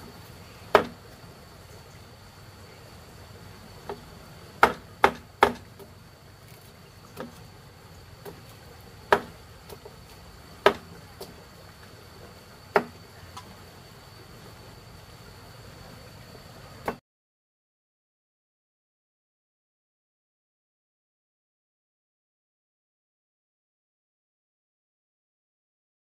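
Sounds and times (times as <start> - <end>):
high insect drone: 0.0 - 17.0
knife chopping on wooden board: 0.7 - 1.0, 4.6 - 5.7, 9.1 - 9.4, 10.6 - 10.9.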